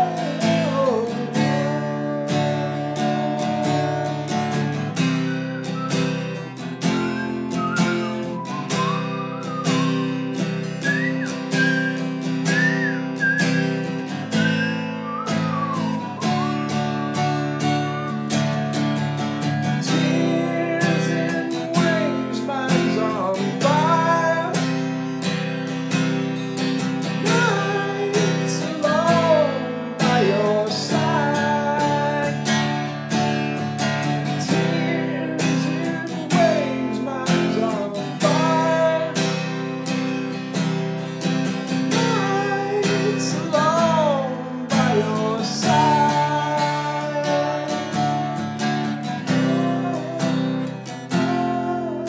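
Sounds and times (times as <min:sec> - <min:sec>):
acoustic guitar strumming: 0:00.0 - 0:52.0
wordless singing: 0:19.8 - 0:24.7, 0:27.2 - 0:32.8, 0:34.3 - 0:39.5, 0:41.9 - 0:48.2, 0:49.3 - 0:52.0.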